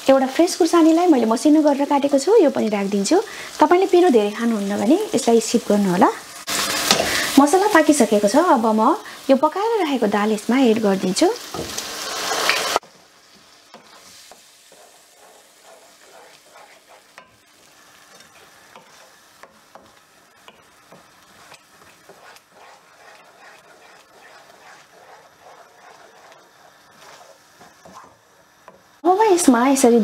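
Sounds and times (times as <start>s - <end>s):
faint sizzle: 0.0s - 30.0s
wooden spoon scraping a pan: 11.6s - 28.9s.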